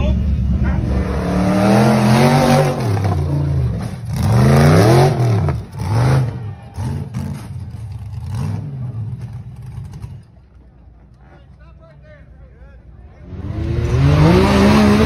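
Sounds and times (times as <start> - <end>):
buggy engine revving hard: 0.5 - 10.0, 13.2 - 15.0.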